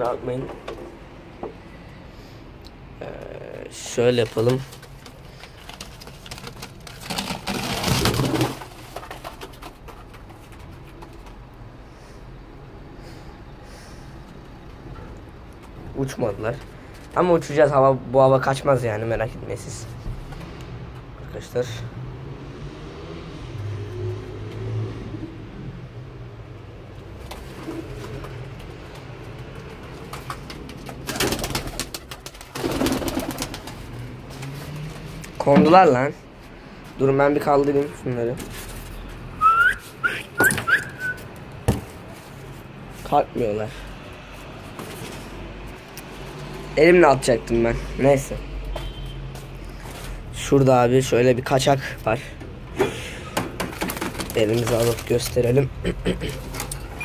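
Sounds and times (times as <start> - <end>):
pigeon wings flapping: 4.2 - 11.4, 27.3 - 35.1, 53.6 - 55.1
feet taps and scrapes: 4.2 - 11.6
pigeon cooing: 39.4 - 41.3.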